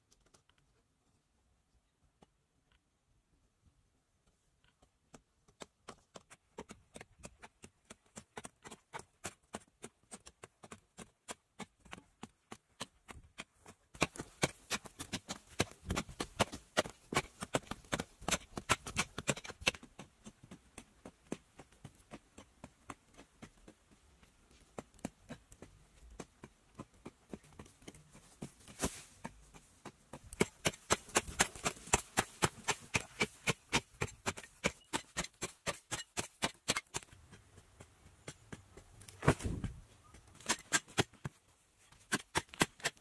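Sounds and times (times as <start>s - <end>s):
hand tools chopping soil: 5.5s - 22.2s, 27.5s - 43.0s.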